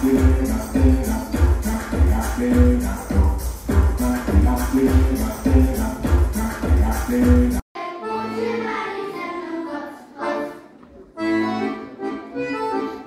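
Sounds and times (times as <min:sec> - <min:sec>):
dance music with heavy bass: 0:00.0 - 0:07.6
accordion folk tune: 0:00.0 - 0:13.0
children singing: 0:00.0 - 0:13.0.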